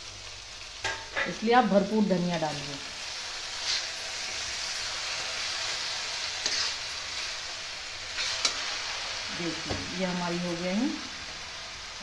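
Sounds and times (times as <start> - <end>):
vegetables sizzling in a pan: 0.0 - 12.0
spatula scraping pan: 3.4 - 4.8, 5.6 - 7.5, 8.1 - 8.9.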